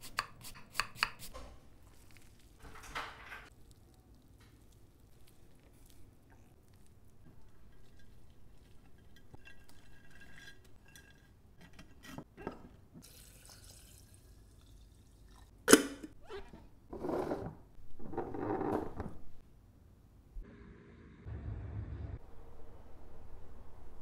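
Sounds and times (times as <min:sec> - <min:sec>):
liquid pouring: 0:13.0 - 0:15.6.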